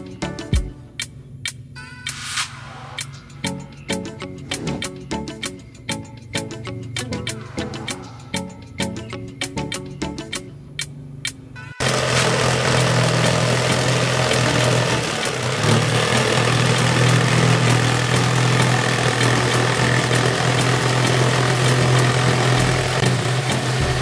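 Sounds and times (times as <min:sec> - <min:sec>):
electric power tool humming: 0:11.8 - 0:24.0.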